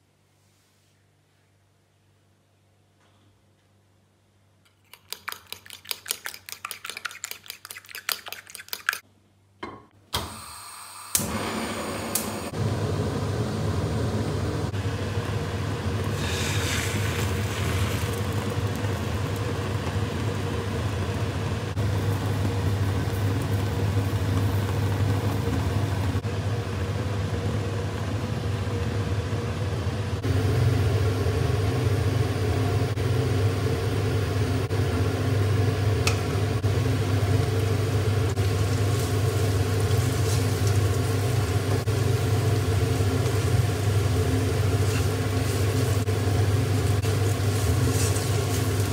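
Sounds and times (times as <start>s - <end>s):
kitchen fan humming: 4.6s - 48.9s
food sizzling in a pan: 14.7s - 26.2s, 37.0s - 48.9s.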